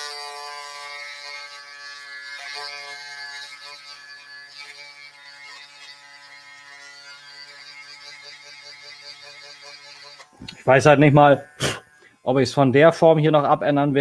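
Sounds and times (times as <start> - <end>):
rotary grinder whining on plastic: 0.0 - 10.5.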